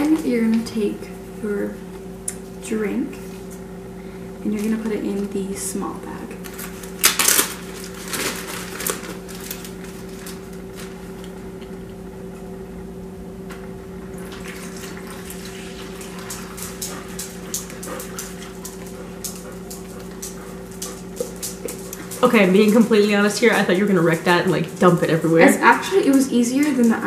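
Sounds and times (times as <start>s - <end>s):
steady low hum: 0.0s - 27.0s
plastic bag crackling: 6.4s - 11.2s.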